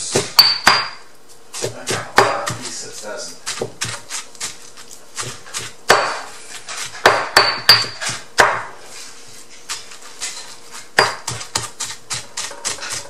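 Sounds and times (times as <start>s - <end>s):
stone pestle knocking in mortar: 0.1s - 2.8s, 3.4s - 4.6s, 5.2s - 8.7s, 11.0s - 13.0s.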